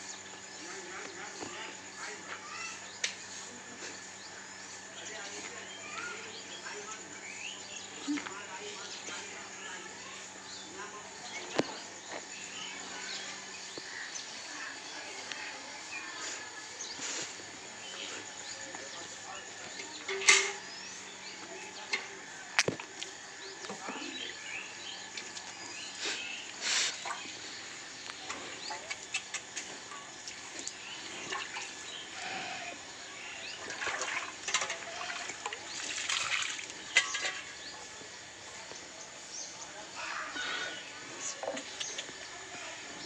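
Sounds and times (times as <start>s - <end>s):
birds chirping: 0.0s - 43.0s
milk squirting into steel pail: 33.6s - 37.4s.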